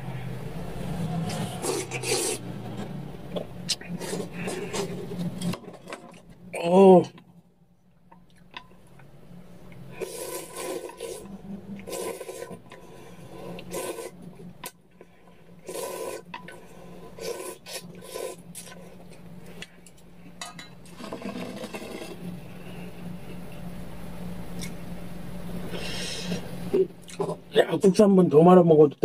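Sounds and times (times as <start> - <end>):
person slurping noodles: 1.0 - 2.6, 3.7 - 5.6, 9.9 - 14.2, 15.6 - 19.0, 20.9 - 22.2.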